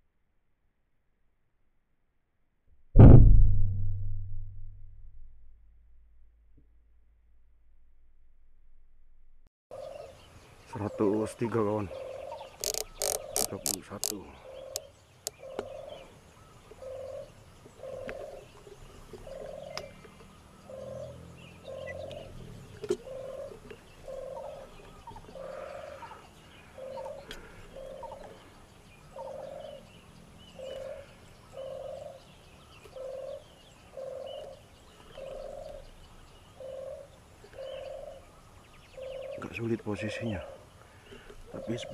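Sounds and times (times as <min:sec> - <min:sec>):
sharp click: 0:12.6 - 0:14.8.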